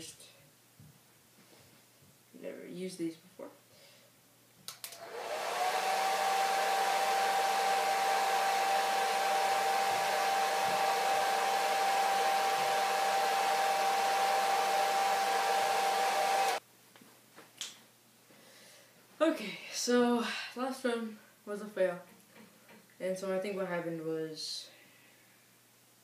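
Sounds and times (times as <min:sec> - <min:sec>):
hair dryer switch click: 0:04.7 - 0:05.2
hair dryer blowing: 0:04.8 - 0:16.6.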